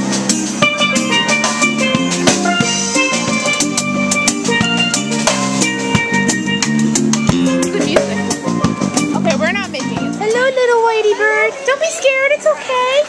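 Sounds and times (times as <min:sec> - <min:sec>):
electric bass: 0:00.0 - 0:10.3
steel pan melody: 0:00.0 - 0:10.8
acoustic guitar: 0:00.0 - 0:11.1.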